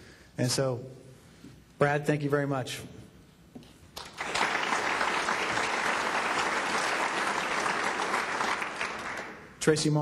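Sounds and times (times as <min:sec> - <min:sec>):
audience applauding: 0:04.0 - 0:09.6.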